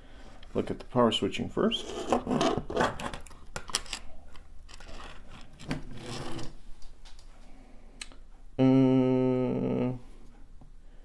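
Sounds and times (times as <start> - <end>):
rubbing and scraping on desk: 1.7 - 3.2, 4.3 - 6.6.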